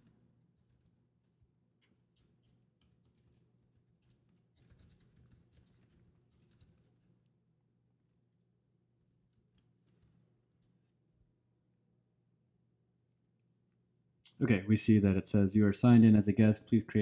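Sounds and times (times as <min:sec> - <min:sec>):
low steady hum: 0:00.0 - 0:17.0
typing on computer keyboard: 0:04.0 - 0:06.8.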